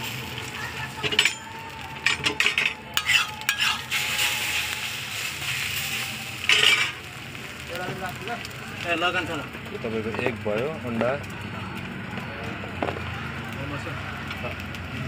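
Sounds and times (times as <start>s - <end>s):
frying sizzle: 0.0s - 15.0s
metal spatula scraping griddle: 0.8s - 1.4s, 2.0s - 7.2s.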